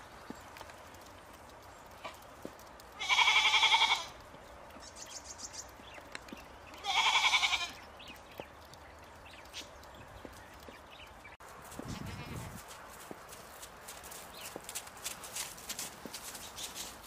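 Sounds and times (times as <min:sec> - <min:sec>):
goat bleating: 0:03.0 - 0:04.2, 0:06.8 - 0:07.8, 0:11.8 - 0:12.6.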